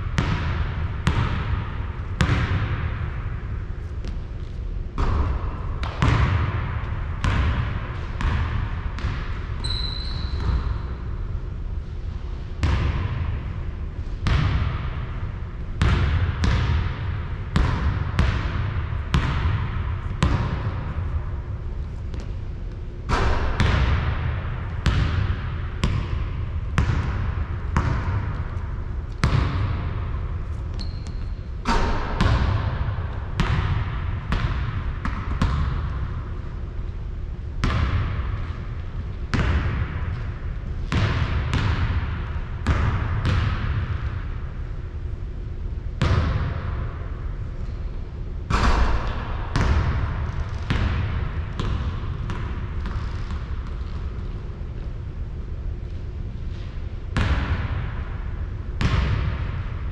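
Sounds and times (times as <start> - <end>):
steady low rumble: 0.0 - 9.6, 10.4 - 59.9
basketball bouncing on hard court: 0.1 - 3.4, 4.0 - 11.0, 12.6 - 13.5, 14.2 - 21.3, 22.0 - 36.3, 37.6 - 44.3, 46.0 - 46.8, 48.5 - 54.9, 56.4 - 58.1, 58.8 - 59.7.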